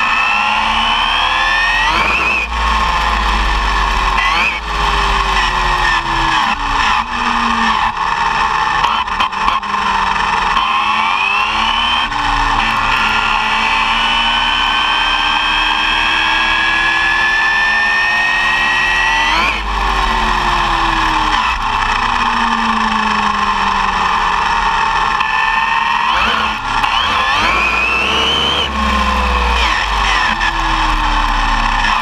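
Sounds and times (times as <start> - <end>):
electric motor whining: 0.0 - 32.0
road noise rushing: 19.1 - 32.0.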